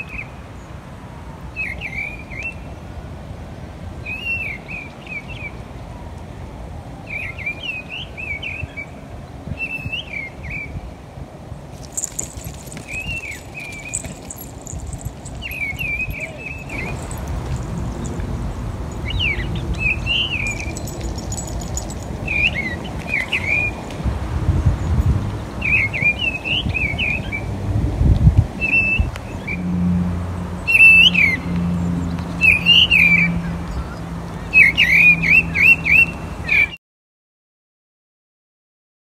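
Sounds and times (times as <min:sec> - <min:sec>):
songbird singing: 0:11.8 - 0:23.8.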